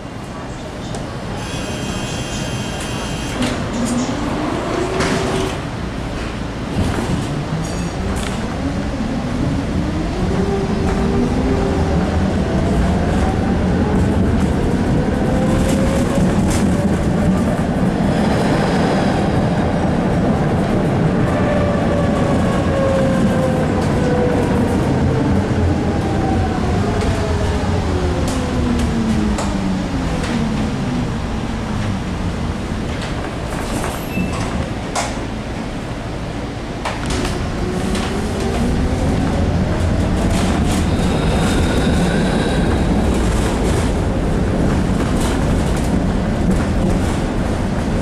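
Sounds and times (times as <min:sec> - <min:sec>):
rumble of wheels on track: 0:00.0 - 0:48.0
rail clicks: 0:36.8 - 0:48.0.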